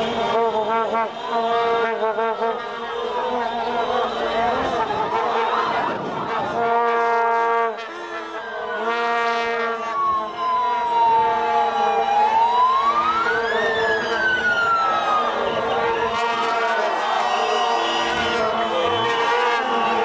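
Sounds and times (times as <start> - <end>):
siren wailing: 0.0 - 20.0
vuvuzelas droning: 0.0 - 20.0.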